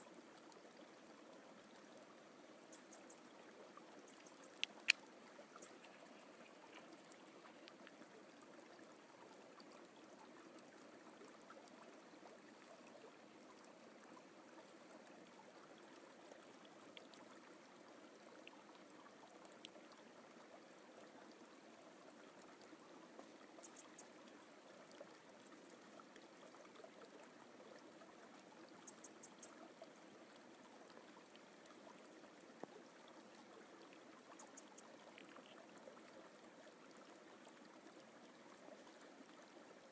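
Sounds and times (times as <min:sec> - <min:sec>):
faint high ticks: 0:02.6 - 0:08.1, 0:22.4 - 0:25.5, 0:28.7 - 0:36.1.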